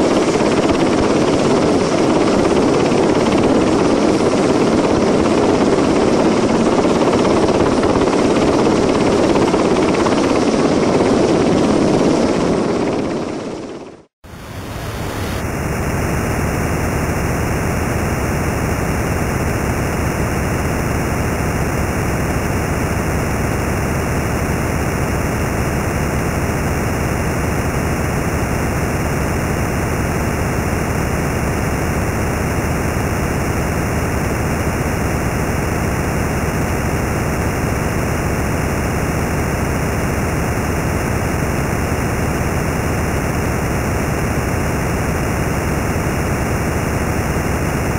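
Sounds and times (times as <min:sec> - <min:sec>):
loud steady static hiss: 0:14.3 - 0:47.9.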